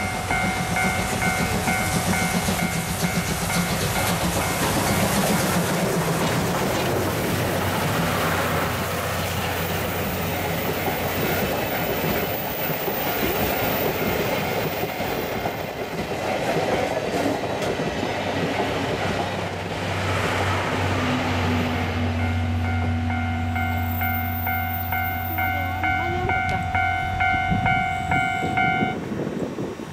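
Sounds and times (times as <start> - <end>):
train wheels clattering over rail joints: 0.0 - 21.0
steady musical tone: 21.3 - 29.0.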